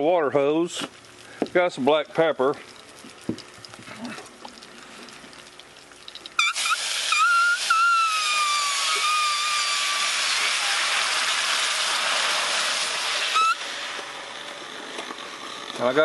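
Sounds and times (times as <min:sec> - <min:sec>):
water hissing on hot skillet: 0:00.0 - 0:16.0
high whistle: 0:06.4 - 0:11.1, 0:13.3 - 0:13.7.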